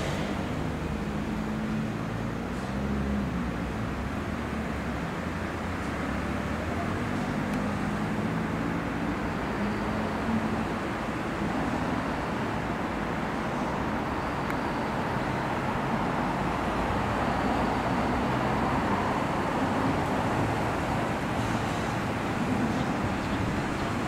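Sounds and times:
distant diesel locomotives rumbling: 0:00.0 - 0:04.2, 0:09.7 - 0:24.0.

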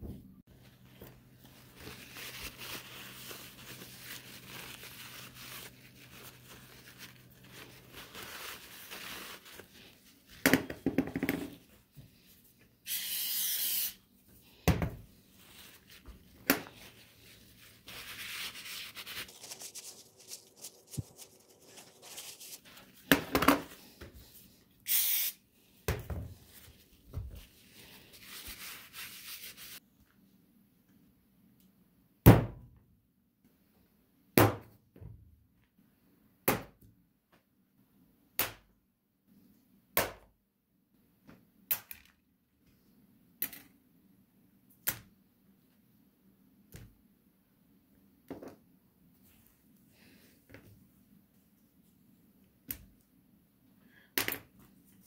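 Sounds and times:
aerosol spray hiss: 0:12.9 - 0:14.0, 0:24.9 - 0:25.4.

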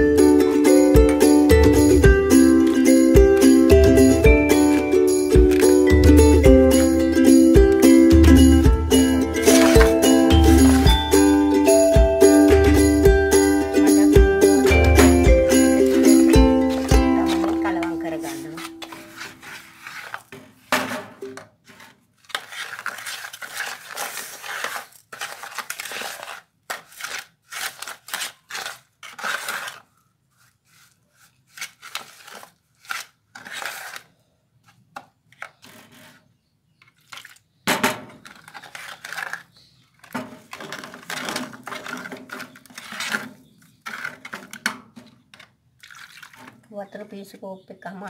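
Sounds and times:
wooden spoon scraping a pot: 0:09.4 - 0:10.0, 0:16.6 - 0:20.6, 0:21.6 - 0:28.4, 0:35.5 - 0:37.4, 0:40.3 - 0:44.6.

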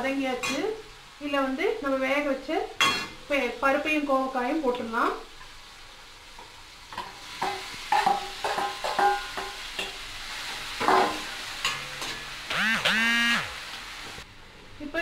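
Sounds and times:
metal utensils clanking on pan: 0:00.4 - 0:00.7, 0:02.8 - 0:03.2, 0:06.4 - 0:12.3.

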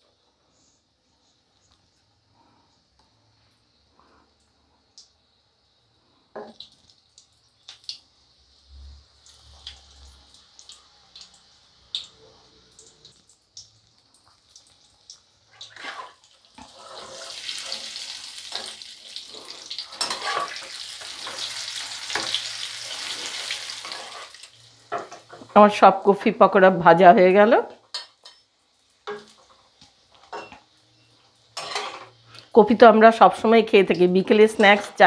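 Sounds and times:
deep-frying sizzle: 0:00.0 - 0:35.0
oil popping and crackling: 0:06.5 - 0:08.1, 0:09.2 - 0:12.2, 0:12.8 - 0:24.6.

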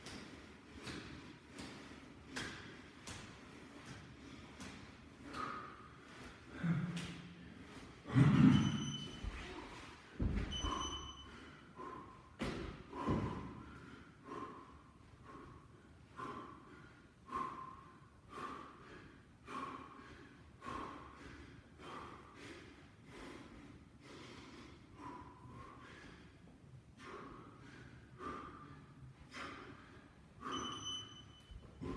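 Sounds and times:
man breathing forcefully: 0:00.0 - 0:31.9
short high beeps: 0:08.5 - 0:09.2, 0:10.5 - 0:11.3, 0:30.5 - 0:31.5
body thumping on floor: 0:10.2 - 0:10.5.

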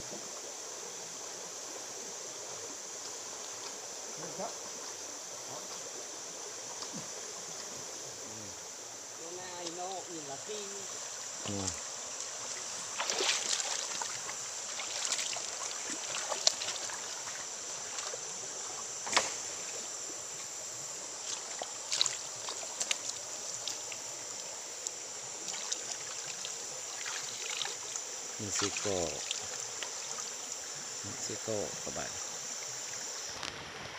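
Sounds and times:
stream running over stones: 0:00.0 - 0:33.9
knocks and splashes: 0:13.0 - 0:14.2, 0:14.8 - 0:18.2, 0:19.0 - 0:19.5.

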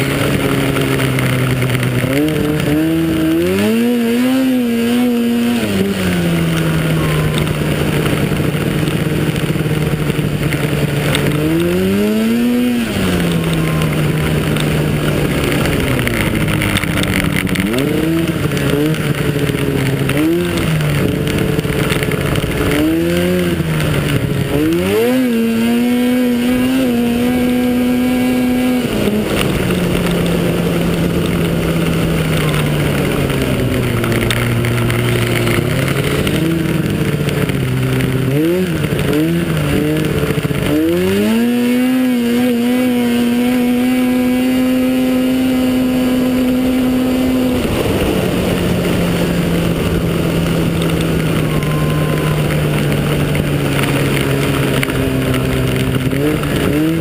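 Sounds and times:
snowmobile engine running hard: 0:00.0 - 0:57.0
wind and track noise: 0:00.0 - 0:57.0.

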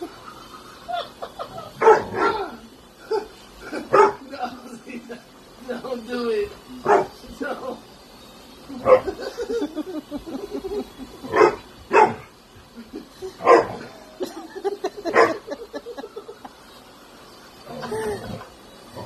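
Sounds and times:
dog barking: 0:01.8 - 0:02.4, 0:03.9 - 0:04.2, 0:06.8 - 0:07.1, 0:08.8 - 0:09.1, 0:11.3 - 0:12.3, 0:13.4 - 0:13.8, 0:15.1 - 0:15.4
dog grumbling: 0:17.7 - 0:19.0.

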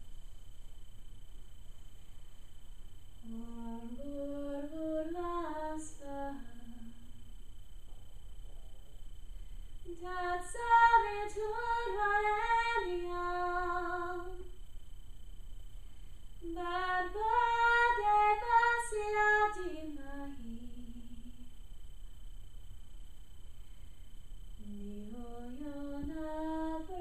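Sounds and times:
woman chanting: 0:03.2 - 0:07.1, 0:09.9 - 0:14.5, 0:16.4 - 0:21.5, 0:24.6 - 0:27.0.

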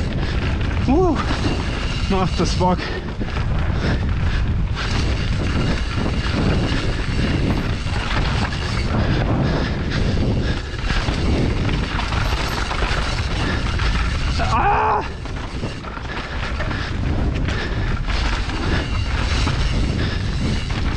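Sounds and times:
wind rushing over microphone: 0:00.0 - 0:20.9
bike knocks and rattles: 0:00.1 - 0:20.9
tyres rolling over dirt: 0:10.8 - 0:20.9.

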